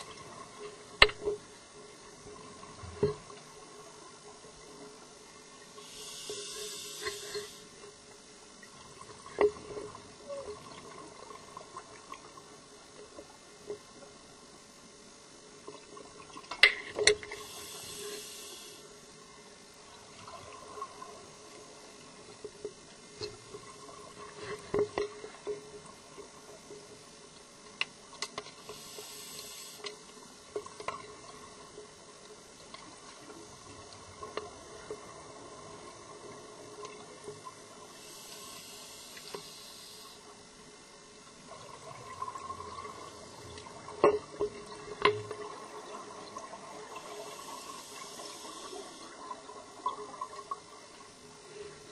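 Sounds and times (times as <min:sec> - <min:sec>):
underwater water sounds: 0:00.0 - 0:51.9
scuba regulator hissing: 0:05.9 - 0:07.6.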